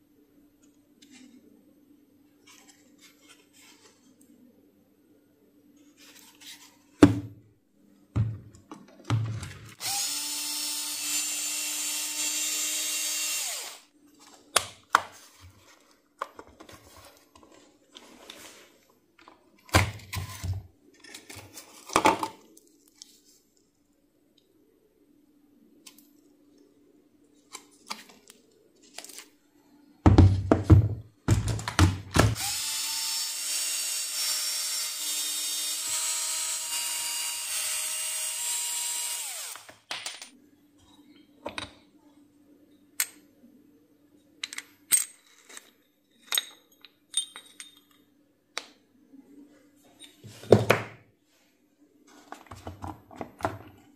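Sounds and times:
cordless power tool motor: 0:09.8 - 0:13.9, 0:32.4 - 0:39.7.

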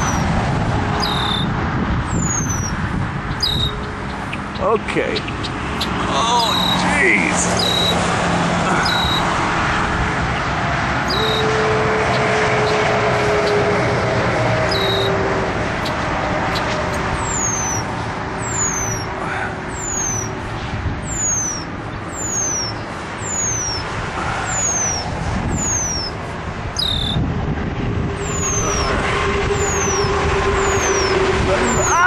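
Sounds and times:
bird alarm calls: 0:00.0 - 0:00.3, 0:00.9 - 0:08.1, 0:08.7 - 0:09.4, 0:10.3 - 0:12.8, 0:14.7 - 0:15.2, 0:15.8 - 0:27.2, 0:28.2 - 0:32.0
steady rumble: 0:00.0 - 0:32.0
lower sharper bird call: 0:01.0 - 0:01.5, 0:02.1 - 0:02.8, 0:03.4 - 0:03.8, 0:07.6 - 0:08.0, 0:08.7 - 0:09.3, 0:11.0 - 0:12.3, 0:14.7 - 0:15.2, 0:15.8 - 0:20.4, 0:21.0 - 0:26.2, 0:26.8 - 0:27.2, 0:28.2 - 0:32.0.

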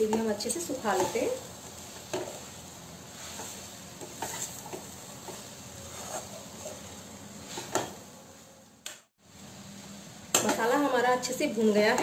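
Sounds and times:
spatula scraping a pan: 0:00.0 - 0:08.1.

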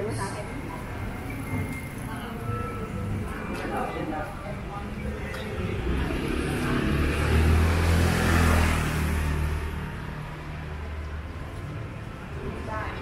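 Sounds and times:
vehicle passing by: 0:02.9 - 0:13.0.

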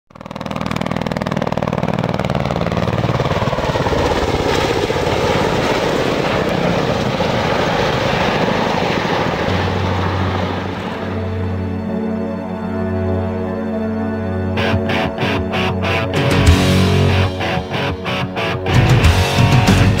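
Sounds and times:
helicopter rotors chopping: 0:00.1 - 0:11.9, 0:14.6 - 0:20.0
helicopter engine noise: 0:00.1 - 0:20.0.

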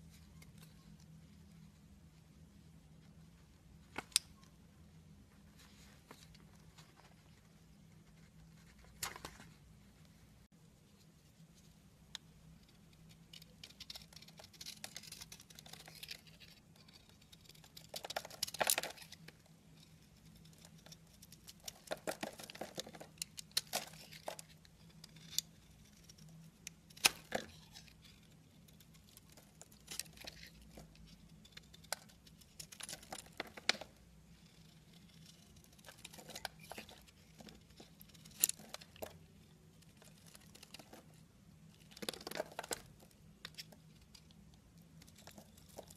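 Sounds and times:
soap flakes crackling: 0:12.9 - 0:45.9
knife scraping soap: 0:34.4 - 0:39.0.

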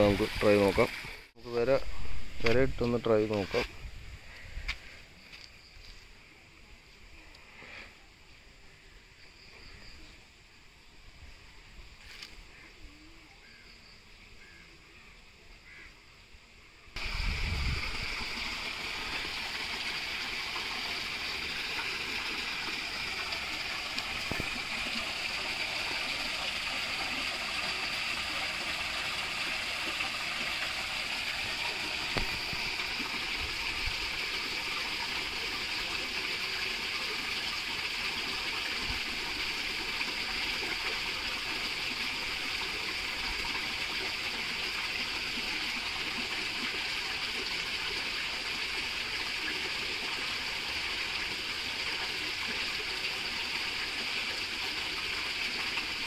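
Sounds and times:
water rushing and splashing: 0:00.0 - 0:03.7, 0:17.0 - 0:56.0.

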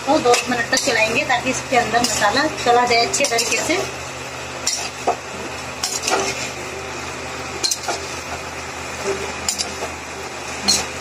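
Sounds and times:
masala sizzling: 0:00.0 - 0:11.0
spoon scraping metal pan: 0:04.6 - 0:05.0, 0:05.8 - 0:06.6.

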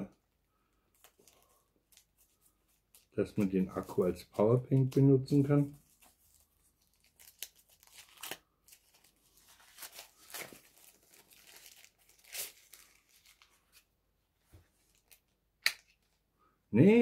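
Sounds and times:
plastic film crinkling: 0:00.7 - 0:13.9, 0:14.7 - 0:16.2.

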